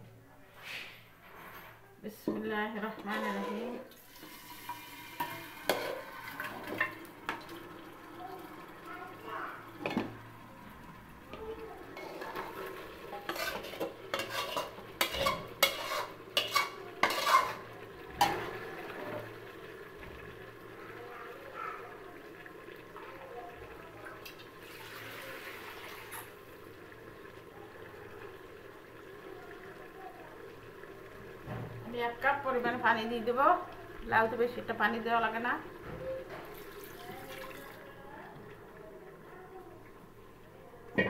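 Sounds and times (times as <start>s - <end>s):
metal spatula scraping cookware: 3.0s - 3.9s, 12.0s - 18.4s.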